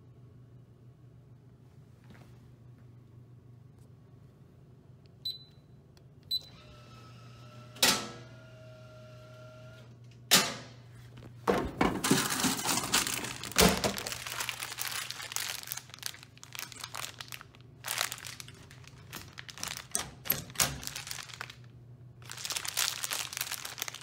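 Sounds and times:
plastic wrappers crinkling: 11.9 - 24.0.

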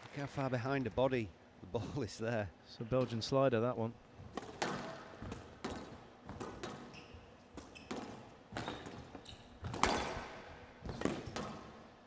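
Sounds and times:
squash ball hitting racket and walls: 4.2 - 12.0.

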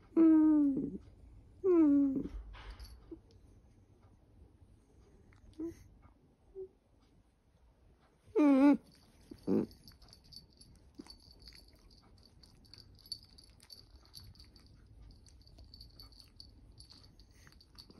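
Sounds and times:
dog whining: 0.0 - 1.0, 1.6 - 2.5, 8.3 - 10.4.

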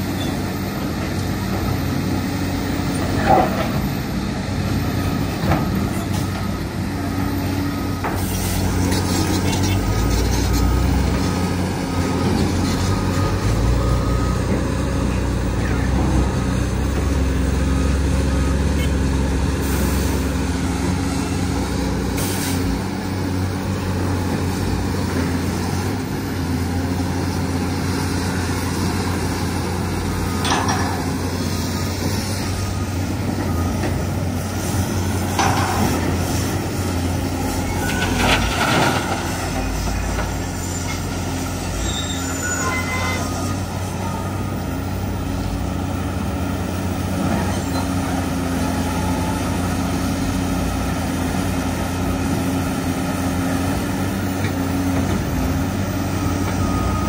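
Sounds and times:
diesel engines droning: 0.0 - 57.0
reversing alarm beeping: 41.7 - 44.9, 56.1 - 57.0.

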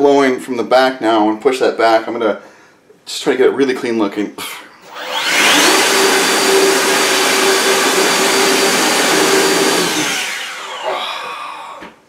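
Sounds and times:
leaf blower whine: 4.8 - 11.9.

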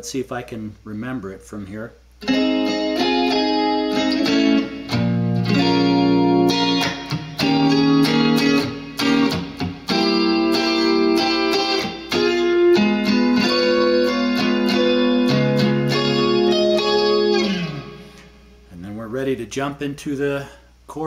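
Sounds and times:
electric guitar strumming chords: 2.2 - 18.7.

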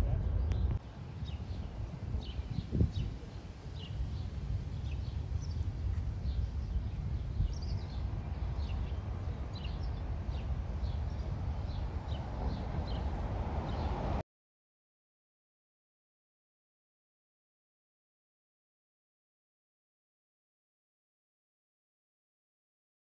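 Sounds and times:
steady low rumble: 0.0 - 14.2
small birds chirping: 0.3 - 14.2.

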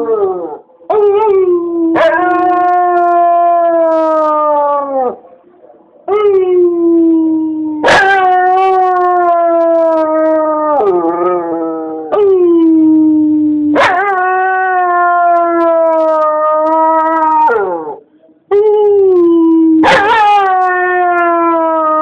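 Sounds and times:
dog howling: 18.9 - 22.0.

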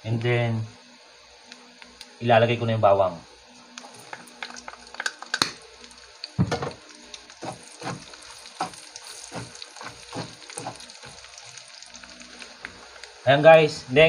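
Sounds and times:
garlic sizzling in hot fat: 3.5 - 14.0
wooden spatula scraping pan: 7.4 - 11.0.

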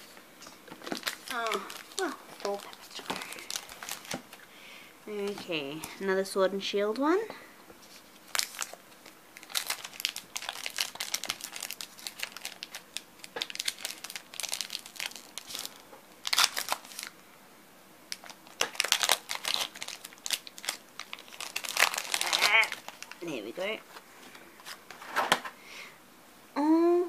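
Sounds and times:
foil wrapper crinkling: 0.7 - 4.4, 7.9 - 17.2, 18.1 - 23.7.

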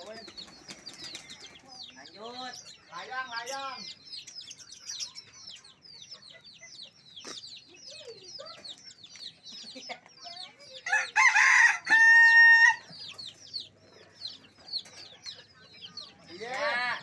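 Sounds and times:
small birds chirping: 0.0 - 17.0
rooster crowing: 10.9 - 12.9.

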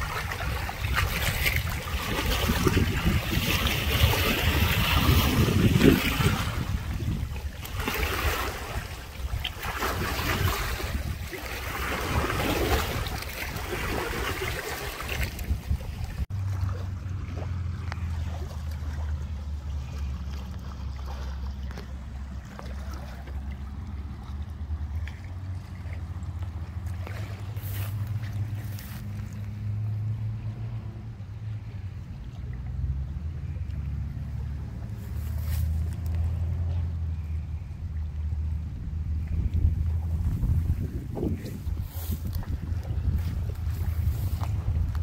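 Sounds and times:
wind gusting on microphone: 0.0 - 16.3, 38.3 - 45.0.

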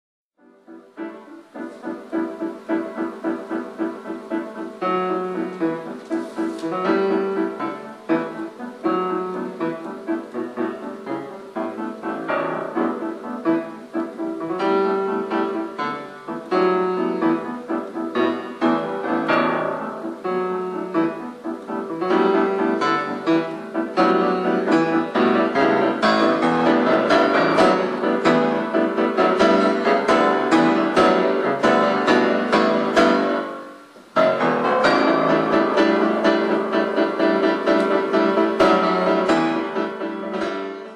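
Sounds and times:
piano music: 0.4 - 40.9.

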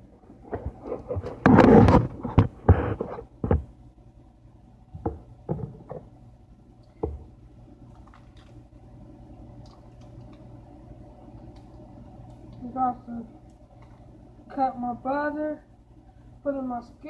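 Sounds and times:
knocks and thuds of objects: 0.5 - 3.7, 5.0 - 6.1.

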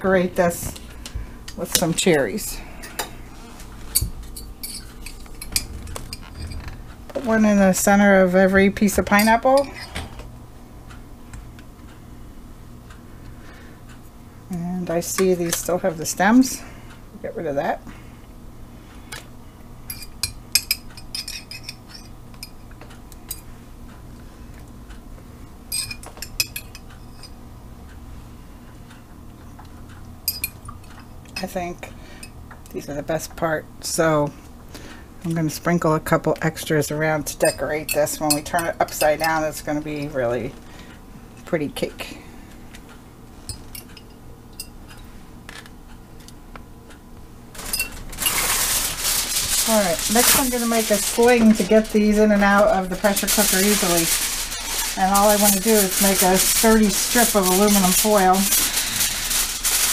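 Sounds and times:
low steady hum: 0.0 - 59.9
aluminium foil pans clinking: 47.5 - 59.9.

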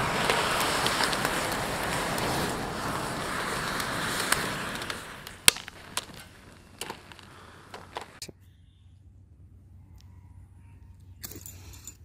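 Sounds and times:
matches flaring up rushing fire: 0.0 - 8.2
crackles and sharp pops: 0.0 - 8.3.

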